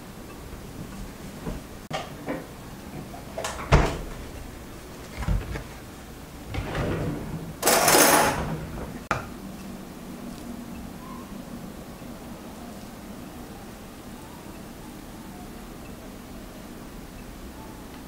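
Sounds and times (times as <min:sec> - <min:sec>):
scraping rustle: 0:04.1 - 0:09.1.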